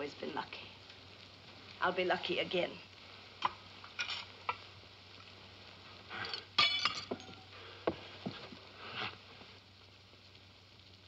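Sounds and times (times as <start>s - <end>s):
glass bottle breaking: 6.3s - 7.5s.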